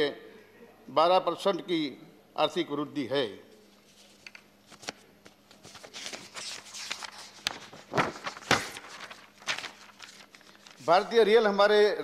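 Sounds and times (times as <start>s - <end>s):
paper rustling and shuffling: 3.6s - 11.2s.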